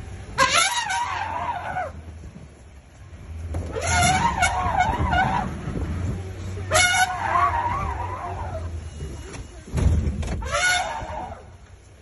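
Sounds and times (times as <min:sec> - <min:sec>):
jeep engine running: 0:00.0 - 0:12.0.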